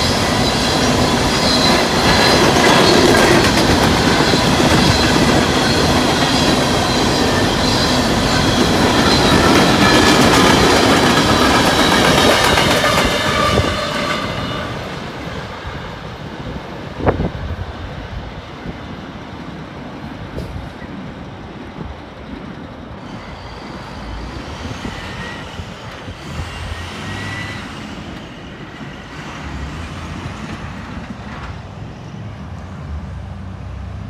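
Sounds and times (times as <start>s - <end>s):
traffic passing: 26.0s - 34.0s.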